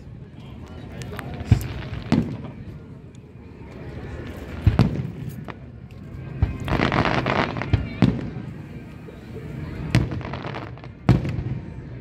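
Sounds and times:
fireworks crackling: 0.9s - 2.8s, 4.0s - 12.0s
fireworks booming: 1.3s - 2.6s, 4.5s - 5.6s, 6.4s - 8.5s, 9.8s - 11.8s.

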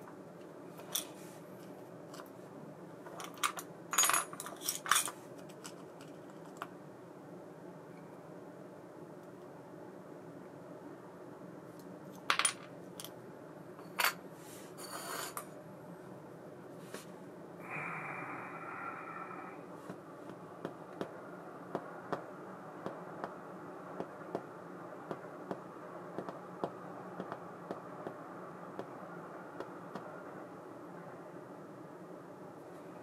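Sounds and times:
metal parts clinking on wood: 3.1s - 6.6s.

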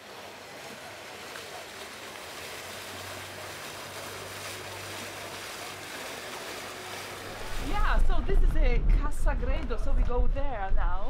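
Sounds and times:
canal water washing: 0.0s - 11.0s
wind noise: 7.3s - 11.0s.

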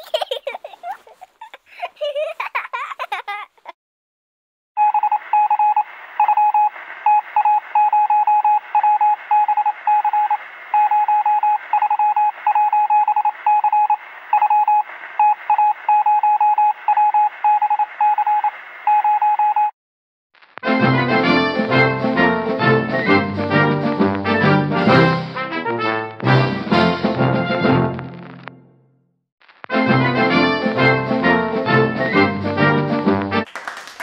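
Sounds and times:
high-pitched morse code beeps: 4.8s - 19.7s.

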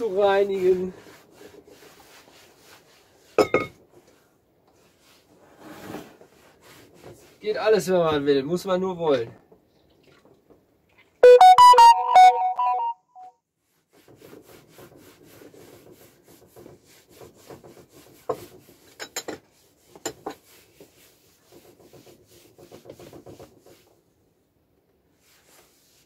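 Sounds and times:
cloth wiping wooden table: 0.0s - 7.9s, 13.8s - 24.2s, 25.1s - 26.0s
electronic jingle: 11.2s - 13.3s.

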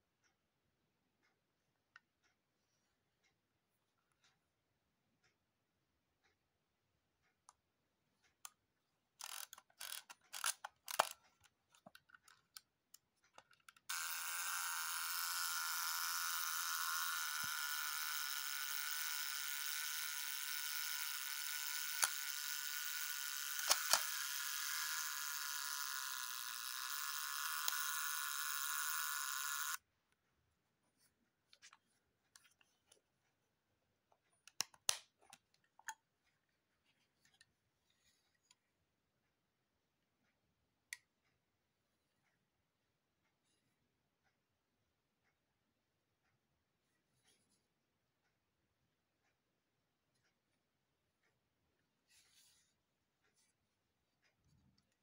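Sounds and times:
camera mechanism clicks: 9.2s - 11.2s, 13.9s - 29.8s.

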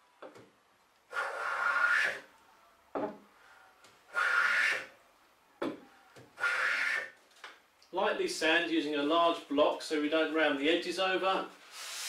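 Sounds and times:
hand plane shaving hiss: 1.2s - 2.2s, 4.1s - 4.9s, 11.7s - 12.0s.

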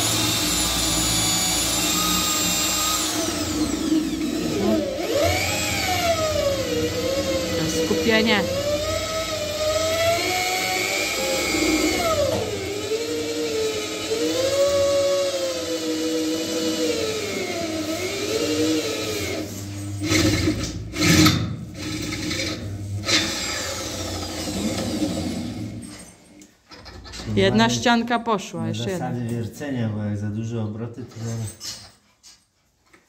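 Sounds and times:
electric drill motor whining: 0.0s - 21.1s, 21.8s - 25.9s
drill grinding metal: 0.0s - 25.9s.

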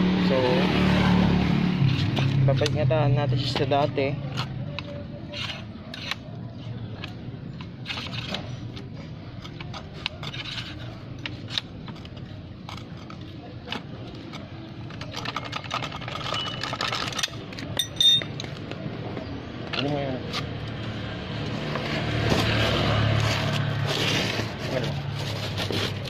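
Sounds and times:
sharp metal clink: 17.8s - 18.4s.

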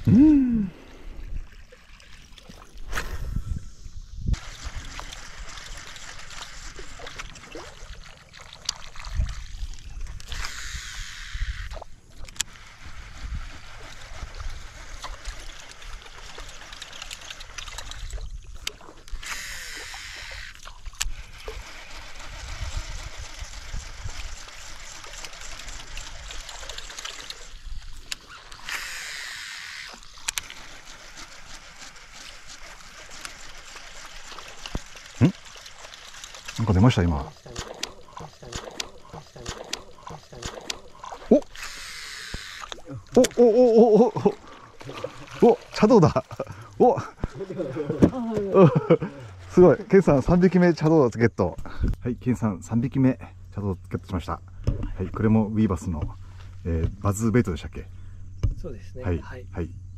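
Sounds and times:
water sloshing and trickling: 0.8s - 10.6s, 11.7s - 29.0s, 29.7s - 41.8s, 42.4s - 51.5s
fishing reel line whirring: 3.1s - 47.9s, 48.6s - 51.2s.

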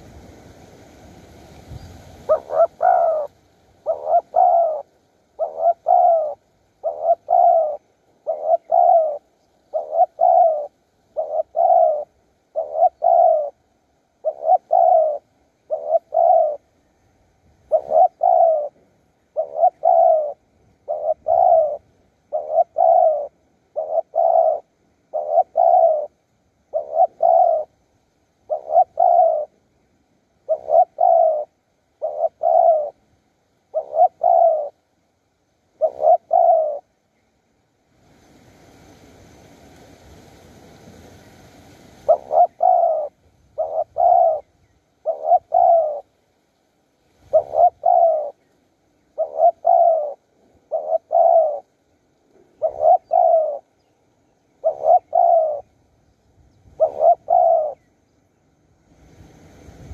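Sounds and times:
dove cooing: 2.2s - 16.8s, 17.6s - 29.6s, 30.4s - 34.9s, 35.6s - 37.0s, 42.0s - 46.2s, 47.2s - 55.9s, 56.6s - 58.0s.

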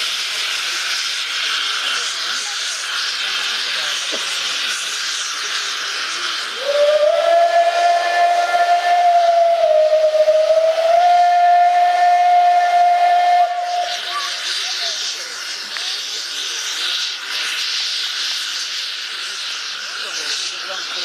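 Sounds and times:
escaping steam hiss: 0.0s - 21.0s
steam whistle blast: 6.5s - 14.1s.

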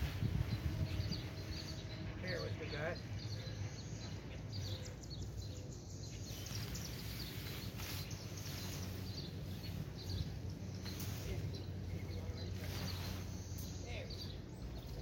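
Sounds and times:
small birds chirping: 0.0s - 15.0s
steady low hum: 0.0s - 15.0s
nylon tent fabric rustling: 6.2s - 13.6s.

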